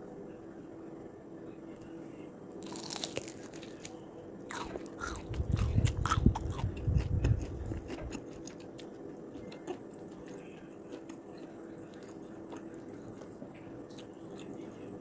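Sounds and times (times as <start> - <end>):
crunching bite into fried chicken: 2.6 - 11.1
person chewing: 2.6 - 11.2.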